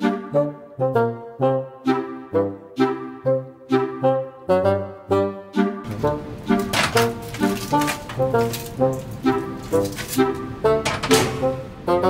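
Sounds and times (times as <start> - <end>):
music with sharply attacked held notes: 5.8 - 12.0.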